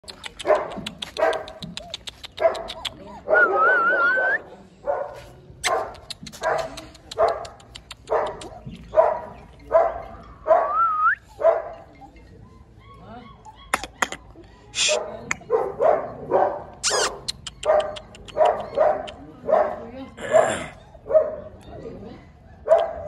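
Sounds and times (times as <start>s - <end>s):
puppies yapping: 0.0s - 4.4s, 5.7s - 19.3s
puppy whining: 11.9s - 15.0s, 16.8s - 18.9s.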